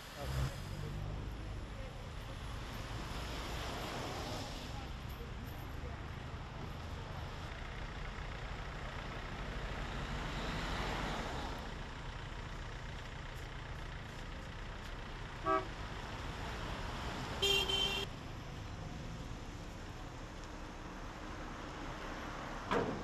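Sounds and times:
traffic rumble: 0:00.0 - 0:23.0
vehicle horn honking: 0:15.4 - 0:15.7, 0:17.4 - 0:18.1.

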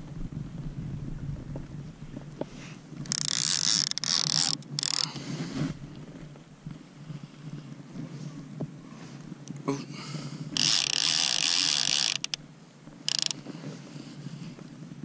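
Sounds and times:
fishing reel whirring: 0:03.0 - 0:05.2, 0:10.6 - 0:12.4, 0:13.1 - 0:13.4.

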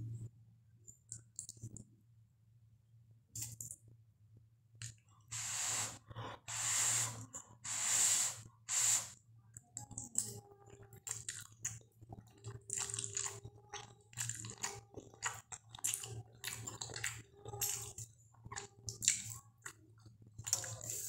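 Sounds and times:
breath hissing through lips: 0:05.3 - 0:09.2.

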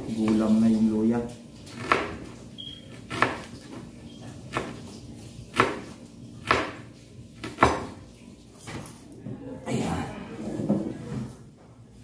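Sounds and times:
knife chopping on cutting board: 0:01.7 - 0:08.0.

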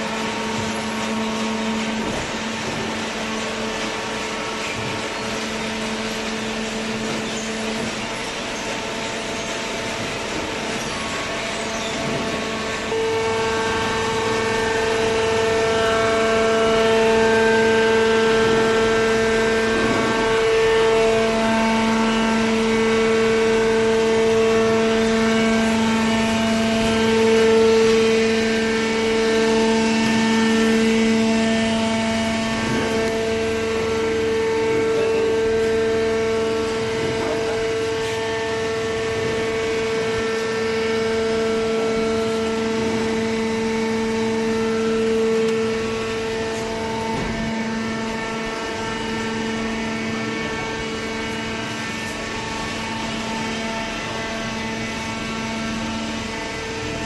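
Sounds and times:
motor and hydraulic pump humming: 0:00.0 - 0:57.0.

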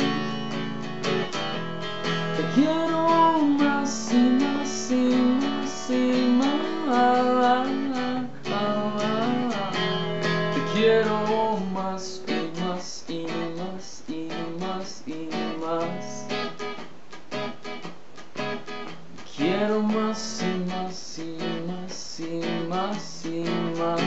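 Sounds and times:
electric guitar playing: 0:00.0 - 0:12.6.

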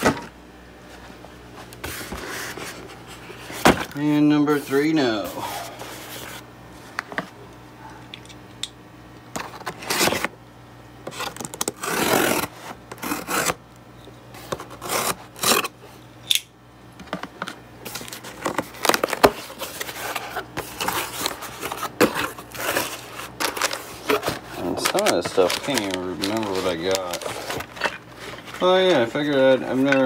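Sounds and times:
scissors slitting packing tape: 0:14.8 - 0:15.7
cardboard flaps rustling open: 0:17.9 - 0:30.0.

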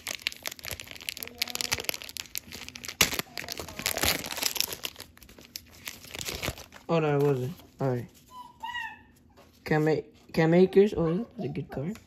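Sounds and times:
plastic wrapper crinkling and tearing: 0:00.0 - 0:08.0.

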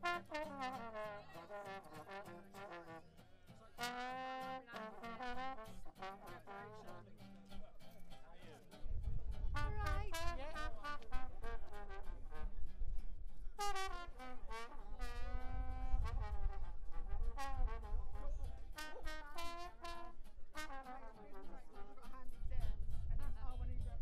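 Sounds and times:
brass music playing: 0:00.0 - 0:03.2, 0:03.8 - 0:07.1, 0:09.5 - 0:12.6, 0:13.6 - 0:22.0.

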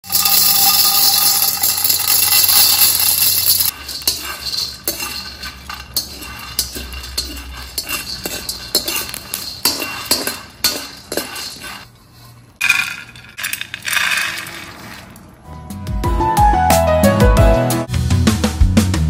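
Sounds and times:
beans pouring into metal wok: 0:00.0 - 0:11.8, 0:12.6 - 0:15.3
metal spoon scraping beans in wok: 0:00.0 - 0:15.4.

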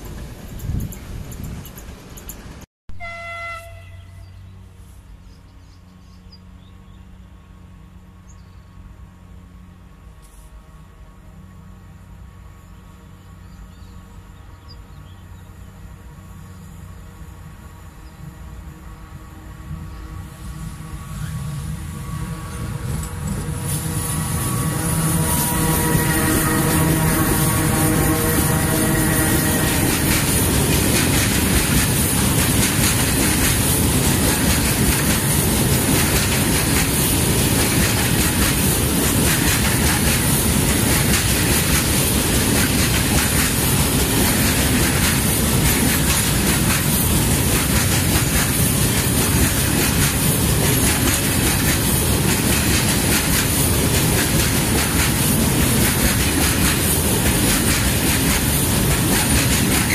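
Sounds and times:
train wheels clickety-clack: 0:00.0 - 0:02.7, 0:21.2 - 0:59.9
train wheels rumbling on rail: 0:00.0 - 0:59.9.

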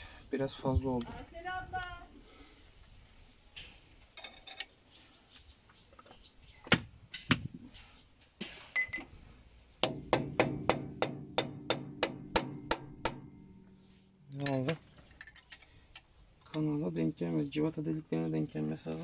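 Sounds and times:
hammer blows on steel: 0:09.8 - 0:14.4
metal parts clinking: 0:11.2 - 0:15.7.

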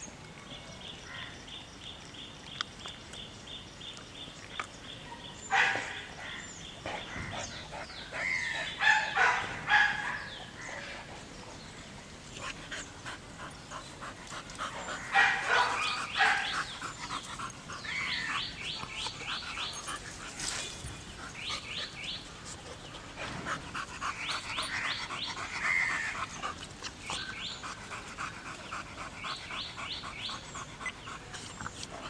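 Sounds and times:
dog panting: 0:12.3 - 0:32.0.

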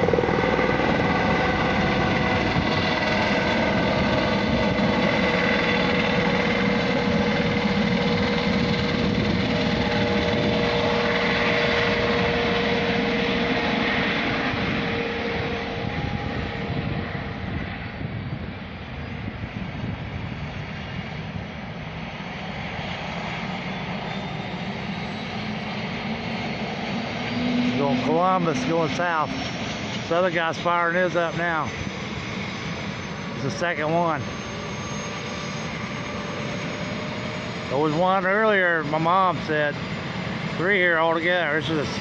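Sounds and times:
helicopter engine and rotor: 0:00.0 - 0:42.0
high whine: 0:22.8 - 0:42.0.

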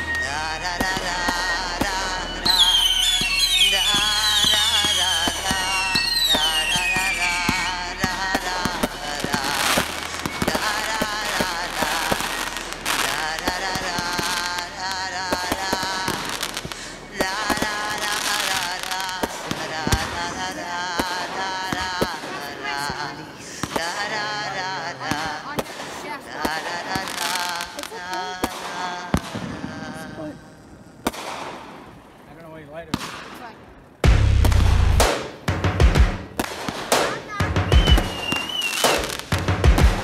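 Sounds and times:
firework whistles falling in pitch: 0:00.0 - 0:13.2, 0:37.6 - 0:39.2
firework cracks and bangs: 0:00.0 - 0:30.1, 0:31.0 - 0:32.2, 0:32.8 - 0:40.0.

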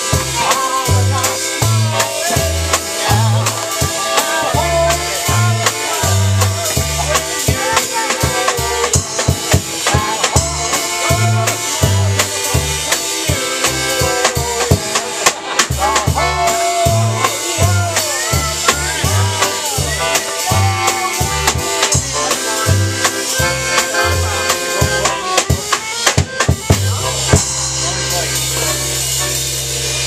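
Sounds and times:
accordion oom-pah bass: 0:00.0 - 0:30.0
accordions playing upbeat tune: 0:00.0 - 0:30.0
drum kit snare and cymbals: 0:00.0 - 0:30.0.

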